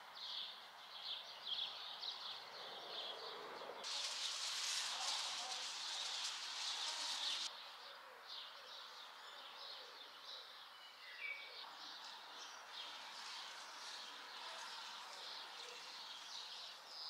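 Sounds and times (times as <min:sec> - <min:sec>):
small birds chirping: 0:00.0 - 0:17.0
dense high chirping hiss: 0:03.8 - 0:07.5.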